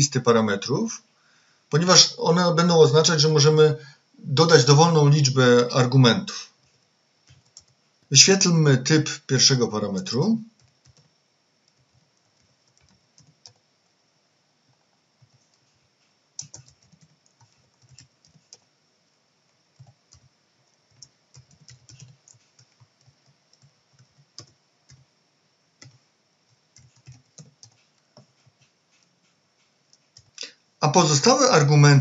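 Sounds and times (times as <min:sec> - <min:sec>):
keyboard typing: 0:07.3 - 0:07.8, 0:10.5 - 0:13.6, 0:14.7 - 0:18.7, 0:19.8 - 0:25.1, 0:25.8 - 0:30.5.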